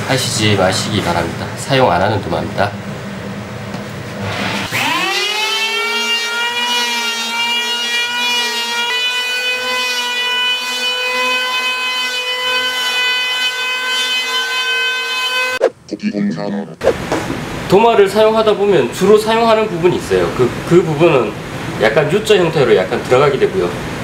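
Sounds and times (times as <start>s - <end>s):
electric hand planer whining: 4.7s - 15.6s.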